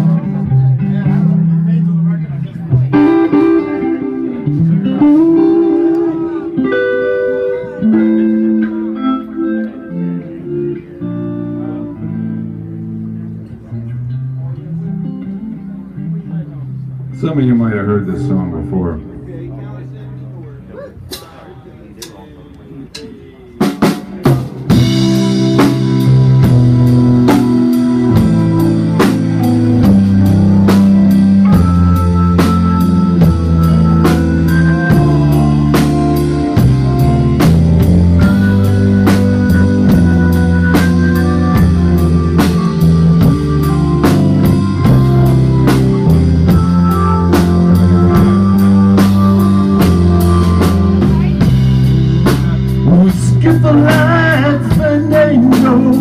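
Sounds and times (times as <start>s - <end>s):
electric bass line: 0.0s - 20.7s, 24.4s - 56.0s
electric guitar melody: 0.0s - 21.2s, 23.8s - 56.0s
drum kit beat: 2.9s - 9.4s, 22.9s - 56.0s.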